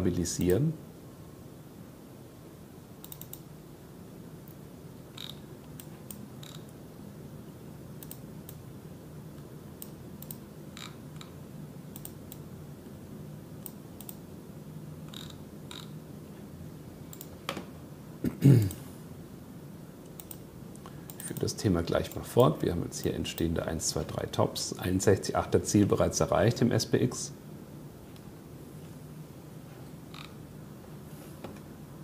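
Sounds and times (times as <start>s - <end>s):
low steady hum: 0.0s - 32.0s
mouse and keyboard clicks: 3.0s - 3.4s.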